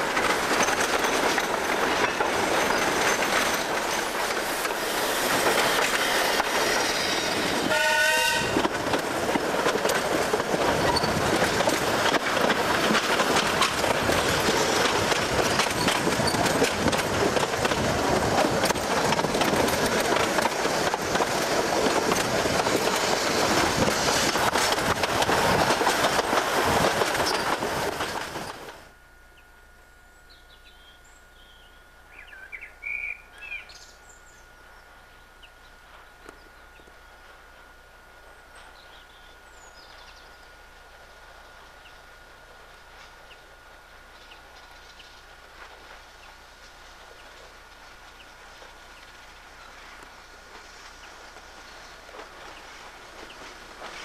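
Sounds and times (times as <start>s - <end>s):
steam train running: 0.0s - 29.0s, 30.3s - 54.0s
wheel clicks over rail joints: 8.6s - 28.8s
steady thin hum: 28.8s - 53.4s
birds chirping: 29.3s - 37.3s.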